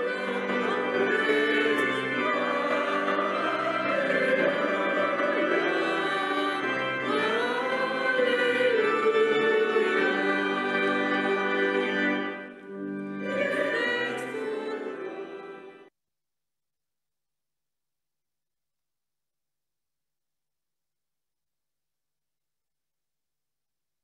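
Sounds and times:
choral singing: 0:00.0 - 0:12.4, 0:13.2 - 0:15.9.

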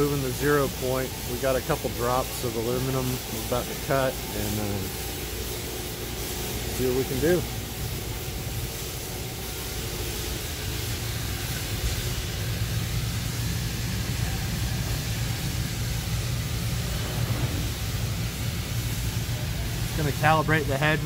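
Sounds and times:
hiss of air: 0:00.0 - 0:21.0
laser cutting machine hum: 0:00.0 - 0:21.0.

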